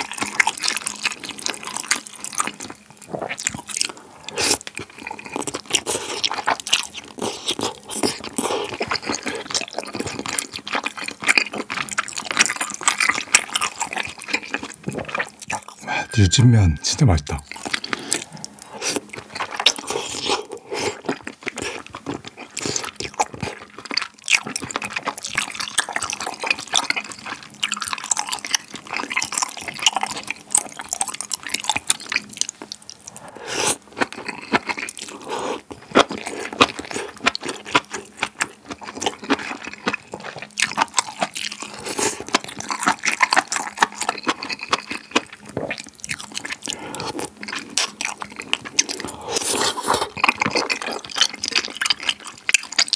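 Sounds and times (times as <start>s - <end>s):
wet chewing: 18.6s - 52.9s
slurping noodles: 46.5s - 52.3s.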